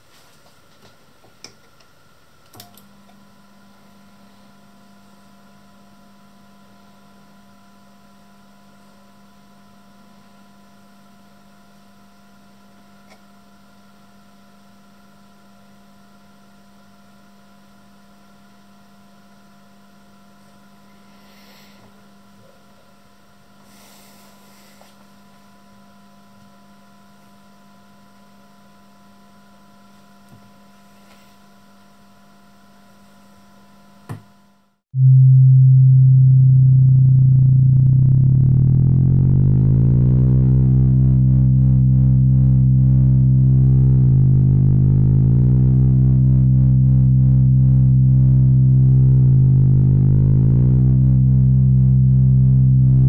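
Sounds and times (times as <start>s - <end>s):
electrical mains hum: 0.0s - 53.0s.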